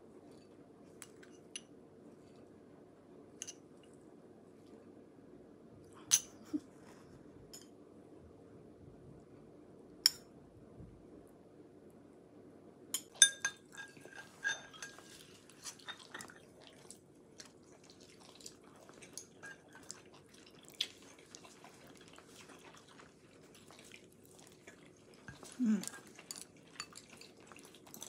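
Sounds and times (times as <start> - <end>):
dishes and utensils clinking: 13.0 - 16.5, 19.3 - 20.0.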